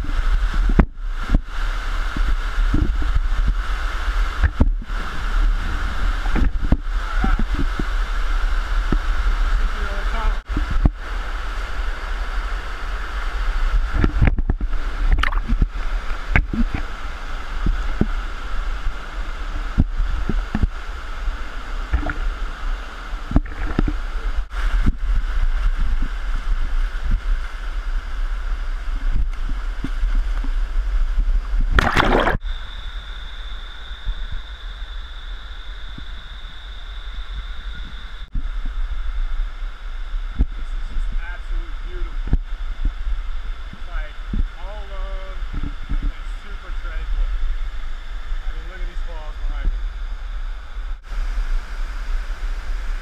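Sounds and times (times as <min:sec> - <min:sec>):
waterfall rushing over rock: 0:00.0 - 0:32.4
deep rumble: 0:00.0 - 0:53.0
thin high whine: 0:00.0 - 0:53.0
water knocks and splashes: 0:14.0 - 0:16.9, 0:21.9 - 0:22.2, 0:23.3 - 0:24.0, 0:31.7 - 0:32.4.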